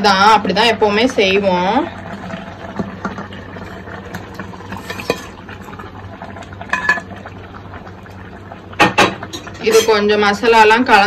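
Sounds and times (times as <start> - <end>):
metal spoon scraping pot: 4.8 - 5.4.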